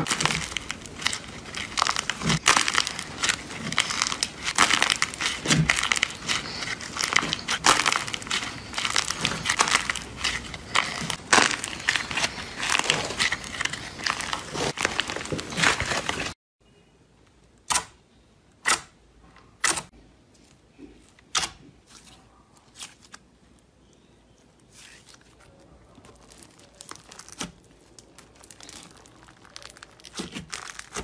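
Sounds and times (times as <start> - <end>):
slime popping: 0.0 - 16.3, 25.4 - 31.0
crunchy slime crackling: 0.0 - 16.4, 21.3 - 31.0.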